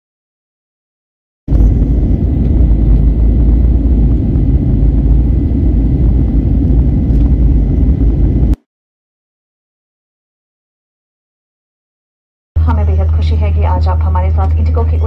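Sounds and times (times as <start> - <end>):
jet engines rumbling in cabin: 1.5 - 8.6, 12.6 - 15.0.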